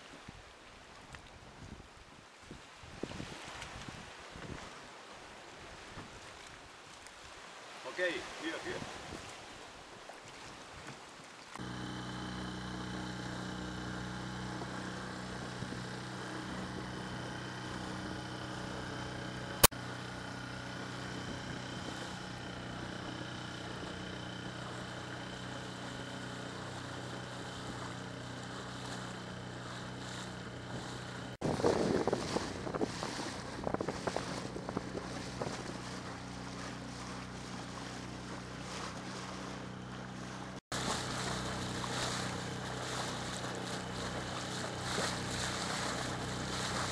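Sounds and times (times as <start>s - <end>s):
water wash: 11.4s - 46.9s
outboard motor idling: 11.5s - 46.9s.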